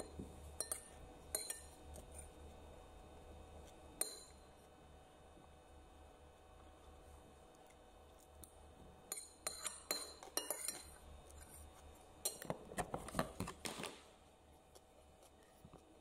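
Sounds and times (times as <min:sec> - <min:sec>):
metal spoon scraping ceramic plate: 0:09.1 - 0:11.0.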